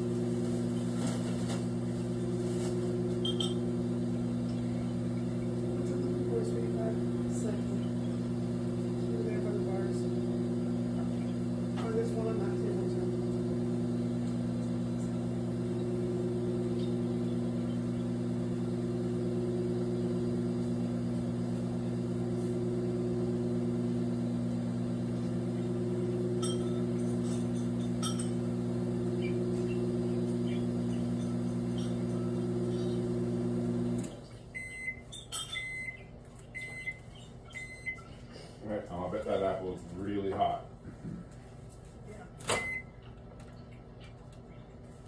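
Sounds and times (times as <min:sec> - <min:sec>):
microwave oven humming: 0:00.0 - 0:45.0
short beeps: 0:03.2 - 0:03.6.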